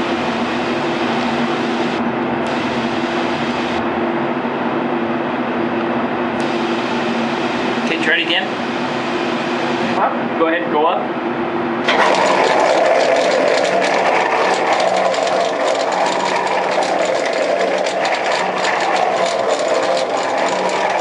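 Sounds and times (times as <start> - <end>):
elevator machinery humming: 11.7 - 21.0
fast rattling clatter: 11.9 - 21.0.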